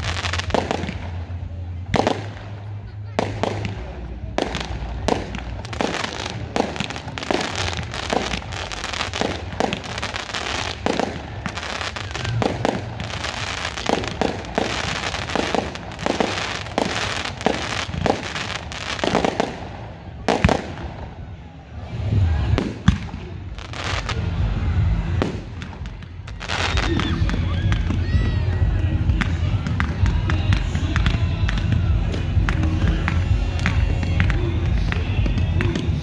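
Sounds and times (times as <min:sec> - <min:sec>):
fireworks crackling: 0:00.0 - 0:36.0.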